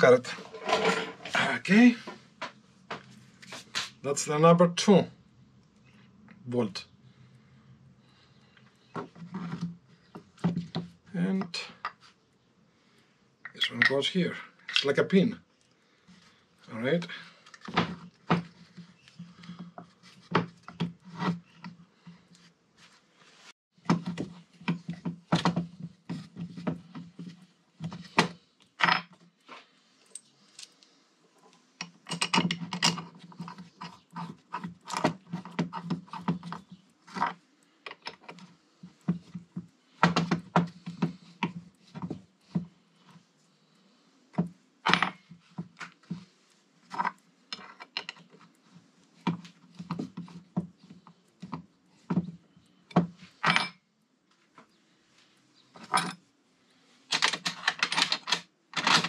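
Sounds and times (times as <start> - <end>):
metal tools clinking: 0.2 - 1.4, 57.1 - 59.0.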